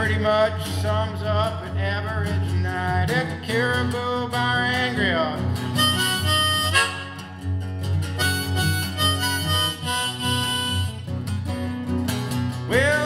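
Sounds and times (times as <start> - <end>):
strummed acoustic guitar: 0.0 - 13.0
harmonica playing held notes: 5.8 - 7.5, 8.1 - 11.2.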